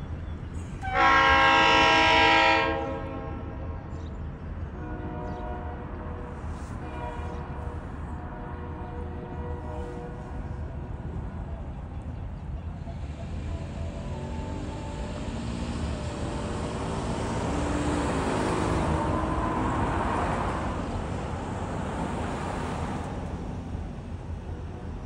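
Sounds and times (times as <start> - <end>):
road vehicle passing: 12.9 - 25.0.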